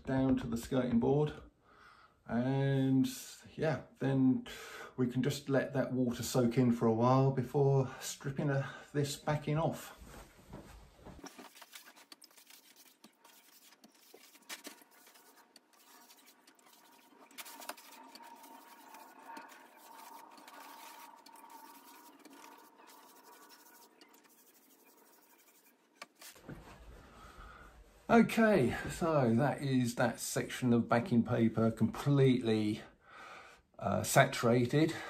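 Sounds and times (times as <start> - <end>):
wet brush swishing on paper: 10.1 - 26.4.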